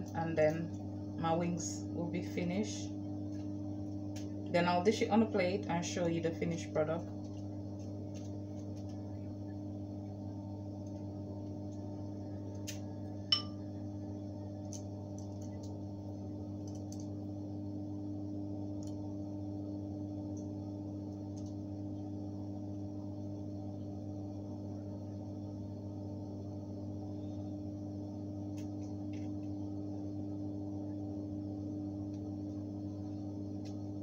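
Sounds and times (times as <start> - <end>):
steady hum: 0.0 - 34.0
sharp tap with brief ring: 13.3 - 13.6.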